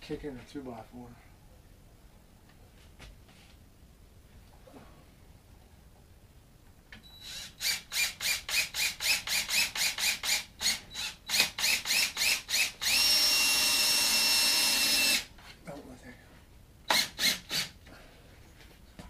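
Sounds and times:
drill running: 0:07.2 - 0:15.3, 0:16.9 - 0:17.8
drill clutch ratcheting: 0:07.3 - 0:15.3, 0:16.9 - 0:17.7.

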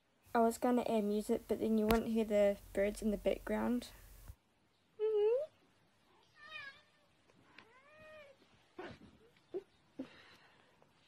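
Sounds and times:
cat meowing: 0:06.2 - 0:09.0.

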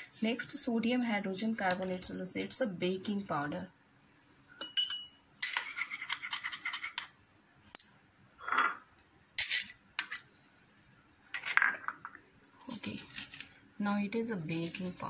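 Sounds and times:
glass bowl clinking: 0:04.6 - 0:05.6.

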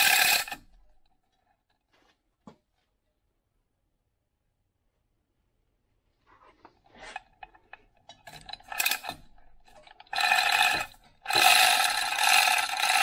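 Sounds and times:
ratchet clicking: 0:00.0 - 0:00.7, 0:07.4 - 0:13.0
chain rattling through hoist: 0:00.0 - 0:01.0, 0:07.2 - 0:13.0.

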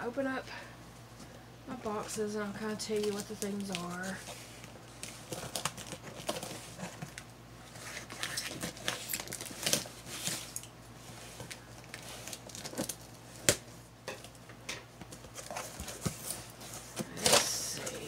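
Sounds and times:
packing paper rustling: 0:02.8 - 0:13.7.

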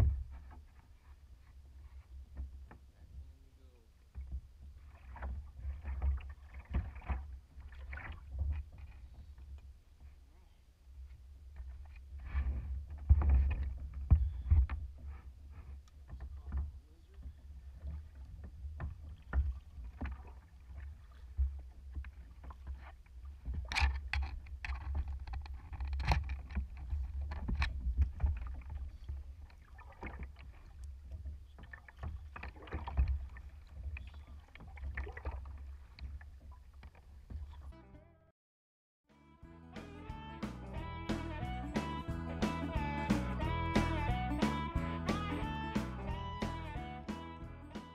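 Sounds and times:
paddle knocking against hull: 0:00.0 - 0:00.8, 0:04.1 - 0:09.3, 0:11.6 - 0:37.7
paddle splashing in water: 0:04.0 - 0:10.2, 0:11.6 - 0:37.7.

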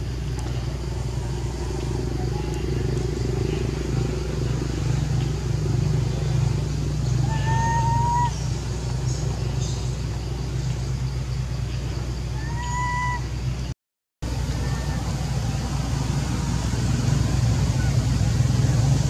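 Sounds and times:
low engine hum: 0:00.0 - 0:19.0
thin rising call: 0:06.2 - 0:10.0, 0:12.3 - 0:13.4.

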